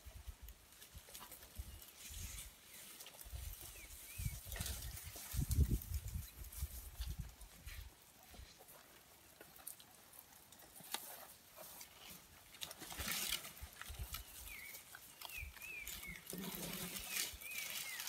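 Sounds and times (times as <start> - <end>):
branches rustling: 0.0 - 18.0
bird chirping: 13.9 - 18.0.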